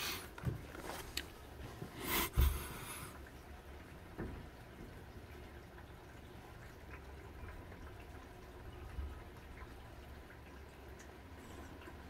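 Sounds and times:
rain through a window: 0.0 - 12.0
drip-like ticks: 2.4 - 12.0.

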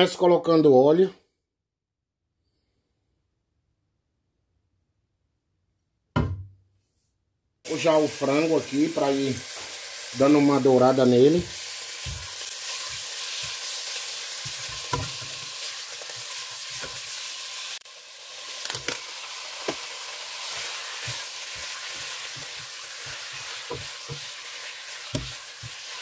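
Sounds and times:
chicken sizzling in hot oil: 7.7 - 26.0
light stirring knocks: 25.1 - 25.8.

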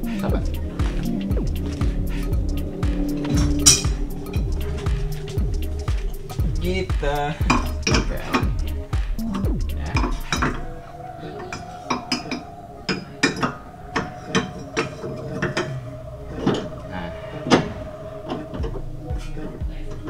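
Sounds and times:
tool knocking against suspension: 1.8 - 10.6.

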